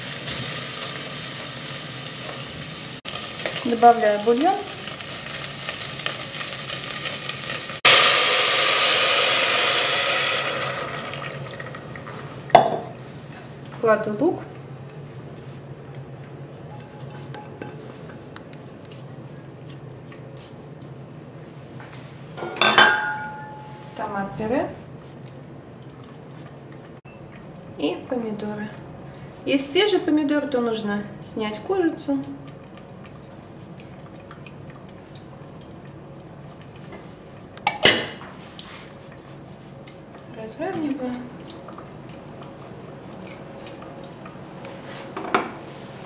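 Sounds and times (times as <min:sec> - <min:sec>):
wet drips and plops: 0:32.3 - 0:37.6, 0:38.5 - 0:44.4.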